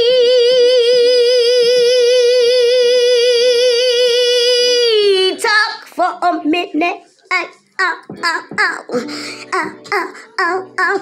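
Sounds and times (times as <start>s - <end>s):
woman singing long note with vibrato: 0.0s - 5.4s.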